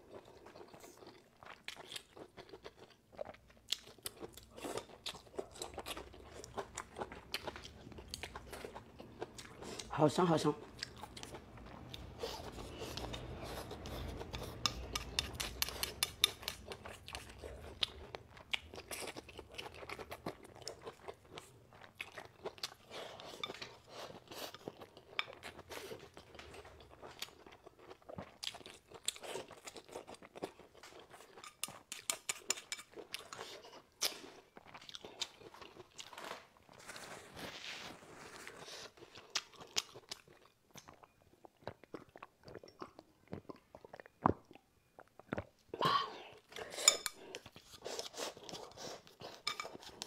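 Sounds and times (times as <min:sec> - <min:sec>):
person slurping and chewing: 0:00.1 - 0:10.0, 0:10.6 - 0:36.1, 0:45.8 - 0:50.0.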